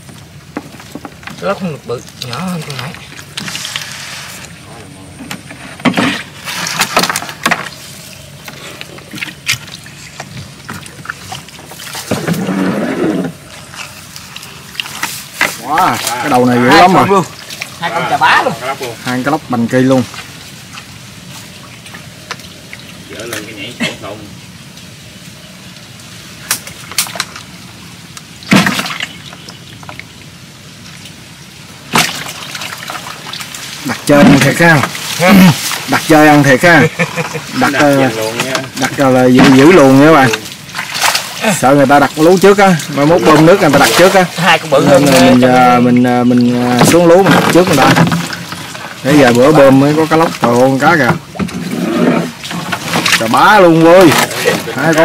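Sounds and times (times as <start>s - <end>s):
water splashing and dripping: 0.0s - 55.0s.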